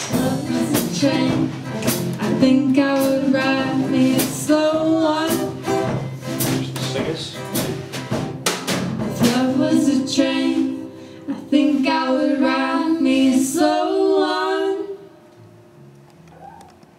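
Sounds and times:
women singing long notes: 0:00.0 - 0:05.6, 0:09.2 - 0:15.2
drum hits: 0:00.0 - 0:09.8
strummed acoustic guitars: 0:00.0 - 0:13.6
acoustic bass guitar: 0:00.0 - 0:16.7.

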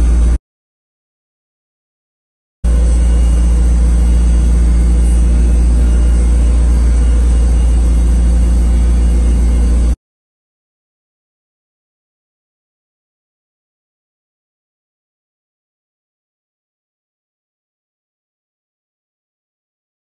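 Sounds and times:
car engine idling: 0:00.0 - 0:00.4, 0:02.7 - 0:10.0.

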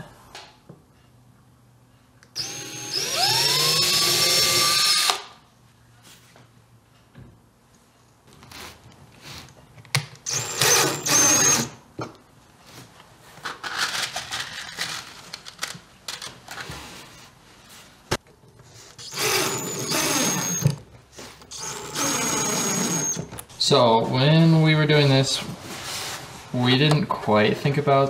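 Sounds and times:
drill motor whine: 0:02.4 - 0:05.2, 0:10.3 - 0:11.7, 0:19.0 - 0:20.8, 0:21.5 - 0:23.3.

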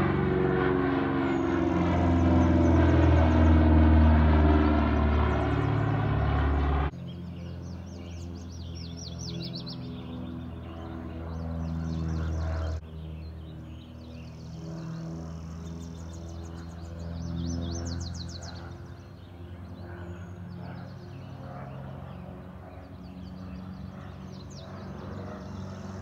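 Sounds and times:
steady low drone: 0:00.0 - 0:08.9
twin piston aircraft engines overhead: 0:00.0 - 0:26.0
songbirds chirping: 0:00.9 - 0:26.0.

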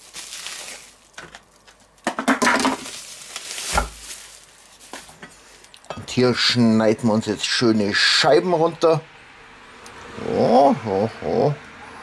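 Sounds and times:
paper wrapping rustling: 0:00.0 - 0:05.8.

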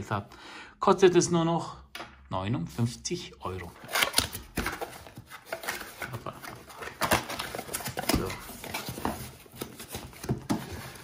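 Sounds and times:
cardboard scraping and rustling: 0:03.8 - 0:11.0.

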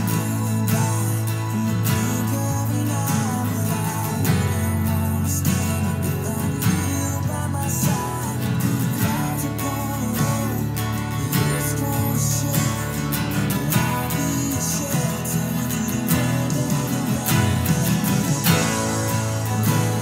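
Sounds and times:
acoustic guitars strummed: 0:00.0 - 0:20.0.

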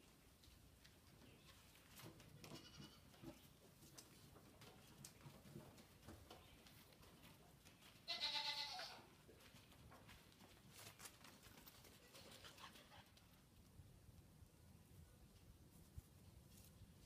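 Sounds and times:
goat bleating: 0:02.5 - 0:03.1, 0:08.0 - 0:09.1.

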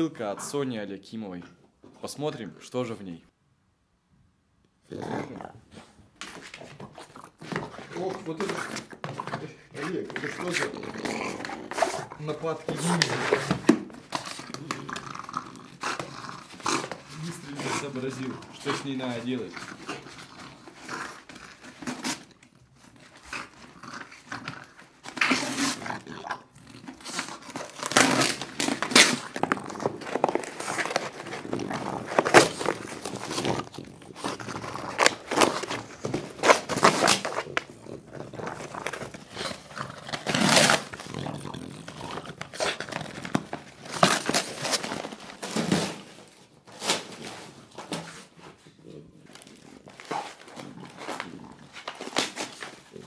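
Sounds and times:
dog tearing cardboard box: 0:06.2 - 0:48.4, 0:49.2 - 0:53.0.

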